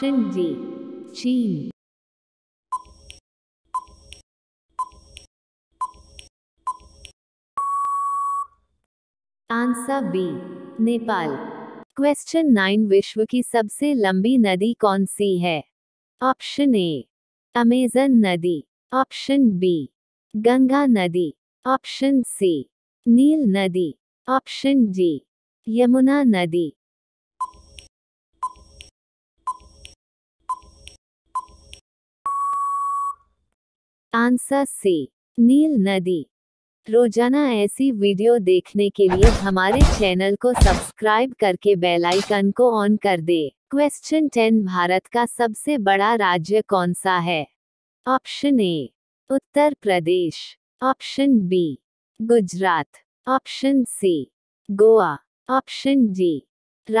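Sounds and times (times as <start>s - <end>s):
electronic timer ticks: 2.7s - 3.2s, 4.8s - 7.2s
long steady beep: 7.6s - 8.5s, 32.3s - 33.2s.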